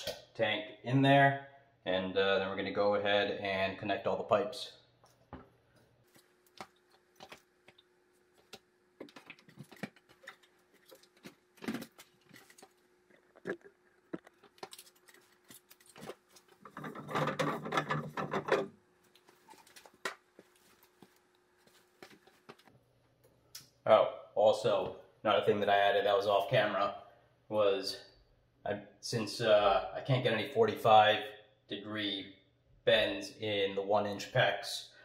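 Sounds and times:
rubbing scraping noise: 15.1 - 18.7.

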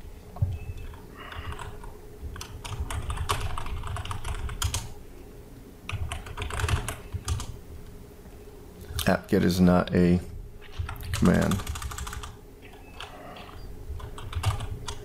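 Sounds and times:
typing on computer keyboard: 0.8 - 4.9, 5.9 - 7.6, 10.8 - 13.2, 14.0 - 15.0.

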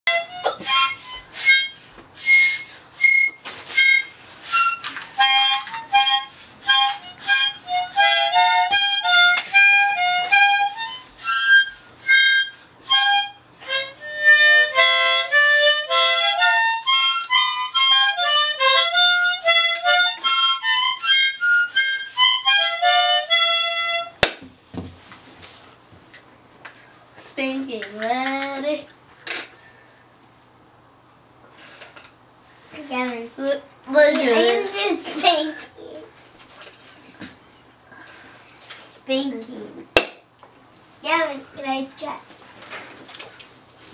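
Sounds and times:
toy harmonica playing: 0.1 - 24.2
sharp knock: 40.0 - 40.2.

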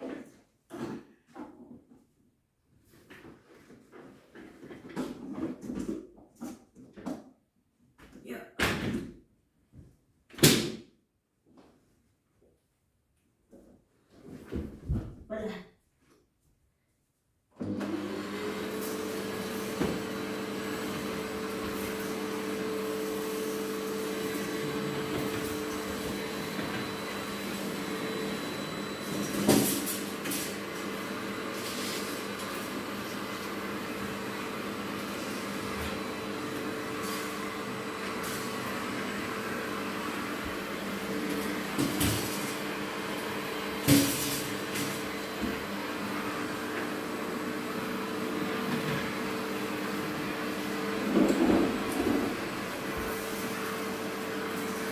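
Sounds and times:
vacuum cleaner running: 17.6 - 54.9.

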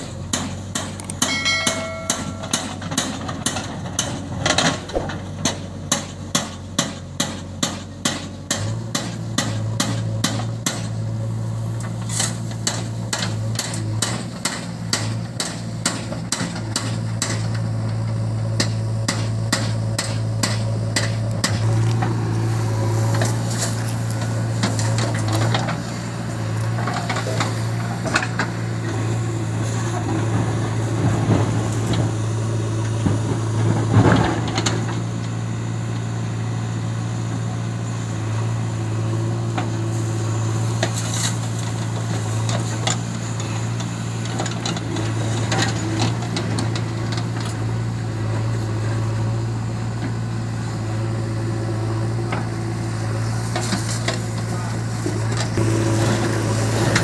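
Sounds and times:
diesel engines droning: 0.0 - 57.0.

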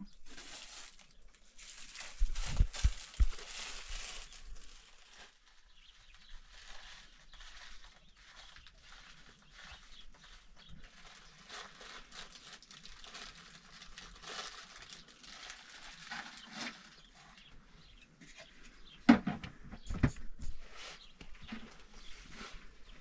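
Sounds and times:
plastic bags rustling: 0.1 - 18.0.

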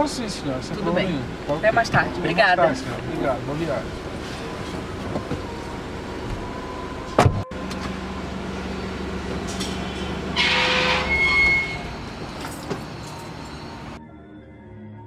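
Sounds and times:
street noise with low hum: 0.0 - 14.0
car door shutting: 4.2 - 8.1, 11.8 - 13.5.

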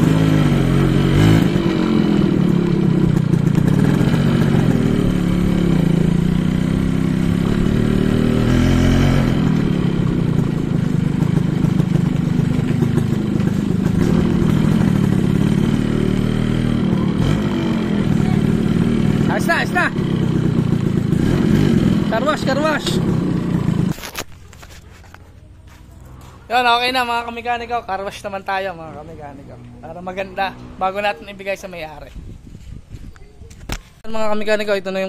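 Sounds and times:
motorcycle engine revving: 0.0 - 24.6.

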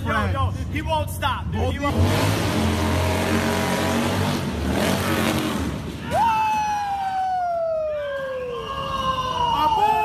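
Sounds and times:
motorcycle engine at high revs: 1.9 - 6.0
tire spinning on pavement: 1.9 - 7.4.

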